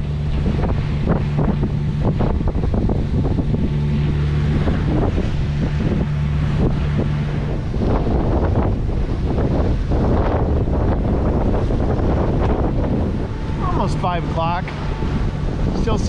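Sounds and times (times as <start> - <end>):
boat engine running: 0.0 - 16.0
water splashing against hull: 0.0 - 16.0
wind buffeting microphone: 0.0 - 16.0.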